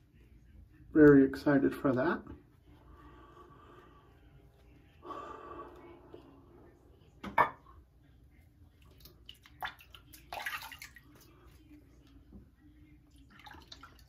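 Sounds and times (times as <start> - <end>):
water splashing in sink: 8.8 - 11.5, 13.1 - 14.0.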